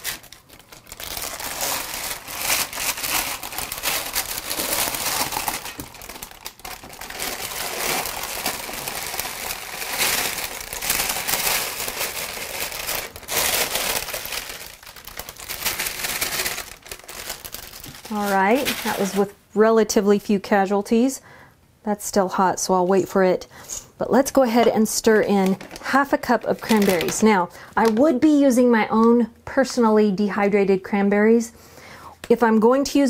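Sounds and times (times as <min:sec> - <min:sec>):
parchment paper crinkling: 0:00.0 - 0:19.4, 0:24.5 - 0:28.2.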